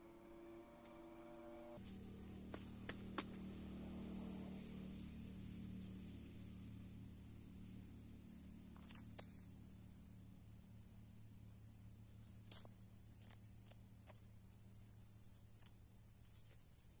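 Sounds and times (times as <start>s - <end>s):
insect chirping: 1.7s - 17.0s
feathers being plucked: 1.8s - 3.6s.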